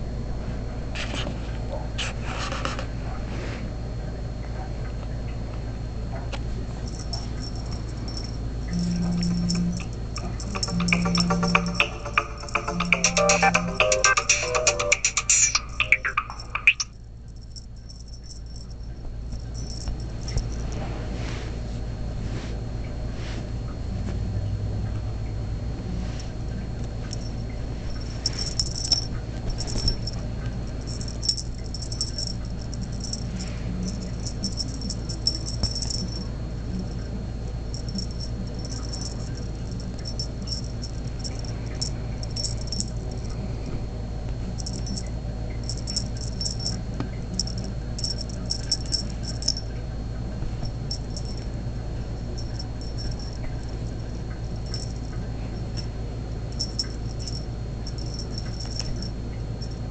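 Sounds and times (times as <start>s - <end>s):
toy mice rattling: 6.8s - 20.8s, 27.1s - 37.0s, 37.6s - 43.4s, 44.6s - 49.7s, 50.6s - 51.5s, 52.2s - 55.9s, 56.6s - 59.9s.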